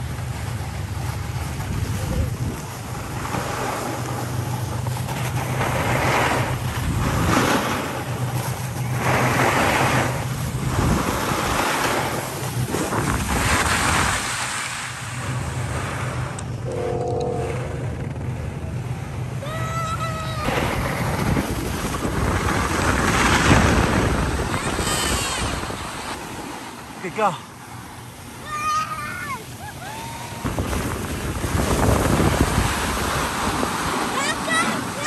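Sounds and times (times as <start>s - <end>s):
wind rushing over microphone: 1.5s - 4.0s, 5.3s - 18.5s, 20.4s - 26.3s, 30.3s - 34.1s.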